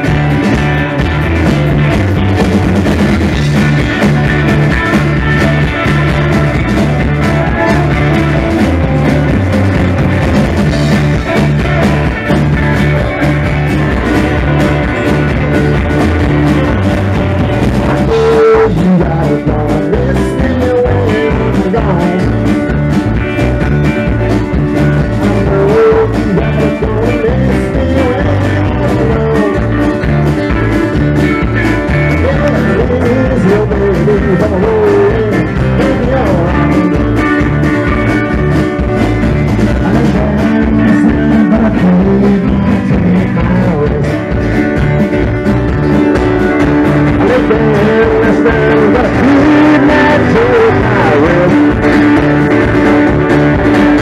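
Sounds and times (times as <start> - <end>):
rock band playing live: 0.0 - 54.0
man singing: 3.3 - 13.1, 17.6 - 23.0, 24.7 - 30.7, 31.6 - 38.4, 39.6 - 44.6, 46.9 - 54.0.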